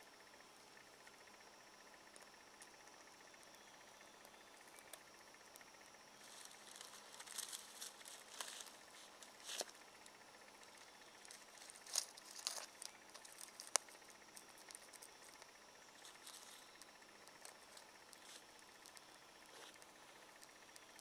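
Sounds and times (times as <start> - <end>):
fire crackling: 4.2 - 21.0
dry twigs snapping: 6.2 - 21.0
twigs rustling: 6.2 - 21.0.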